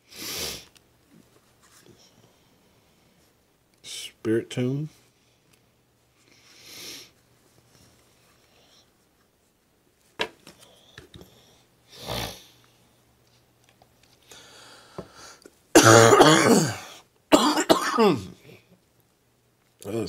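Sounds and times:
cards rustling and clicking: 10.1 - 11.3
man coughing: 15.8 - 18.3.

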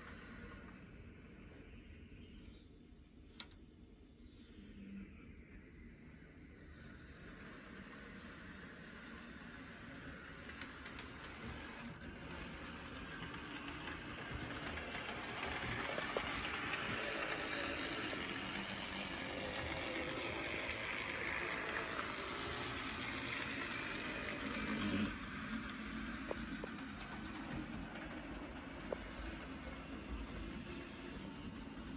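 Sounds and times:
model train motor whirring: 6.7 - 31.9.

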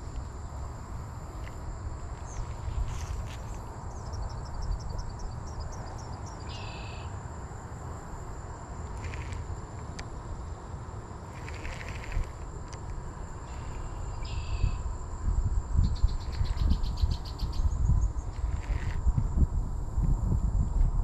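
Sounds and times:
insects droning: 0.0 - 21.0
low outdoor rumble: 0.0 - 21.0
quick ticks: 8.9 - 10.1.

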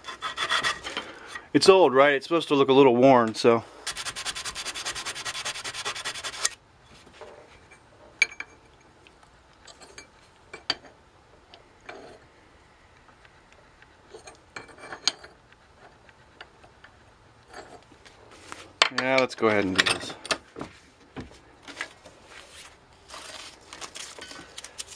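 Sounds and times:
abrasive rubbing on steel: 3.8 - 6.6
metal clinks and knocks: 7.2 - 8.9, 9.6 - 12.2, 14.1 - 15.4, 18.8 - 20.5.

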